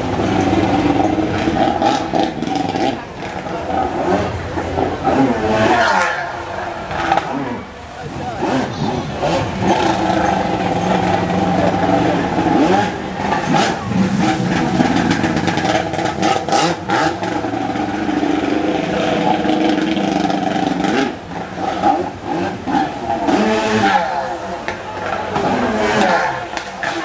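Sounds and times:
jet ski engine revving: 0:00.0 - 0:27.0
water spray splashing: 0:06.9 - 0:27.0.

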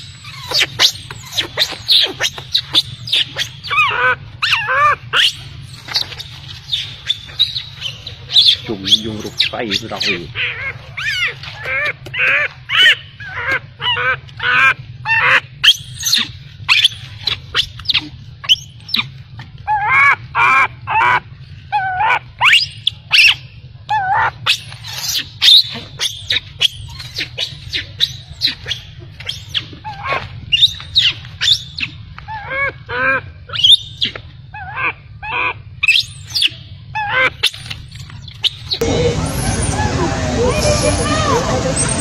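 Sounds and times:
baby monkey squealing: 0:00.0 - 0:38.8
low hum: 0:37.6 - 0:42.0.

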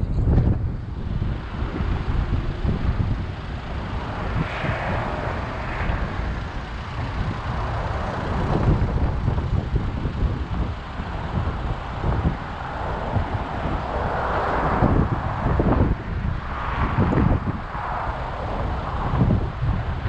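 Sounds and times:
road and wind rumble: 0:00.0 - 0:20.0.

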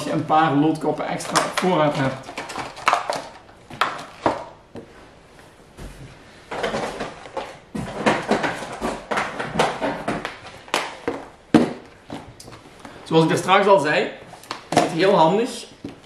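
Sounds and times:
plastic packaging crinkling: 0:01.2 - 0:04.6
plastic packs knocked on table: 0:06.5 - 0:12.3.

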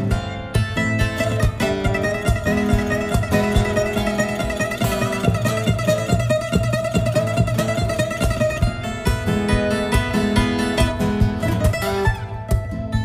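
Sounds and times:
plucked guitar-like music: 0:00.0 - 0:13.0.

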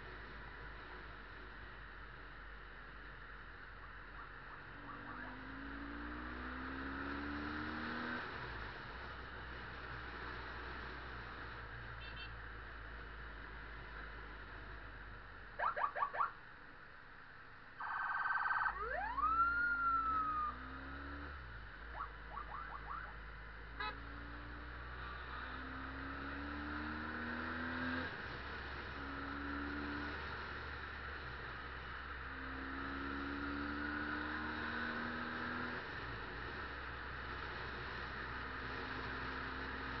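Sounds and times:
traffic noise: 0:00.0 - 0:40.0
siren chirps and whoop: 0:04.5 - 0:05.4, 0:17.8 - 0:20.7, 0:21.9 - 0:23.2.

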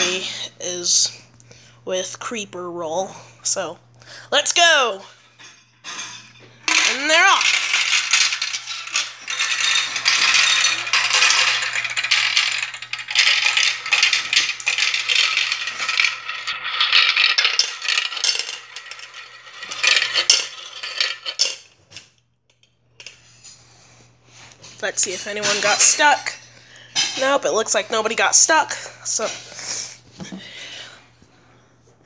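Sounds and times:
glass marbles rattling down track: 0:05.4 - 0:21.7, 0:25.0 - 0:26.4.

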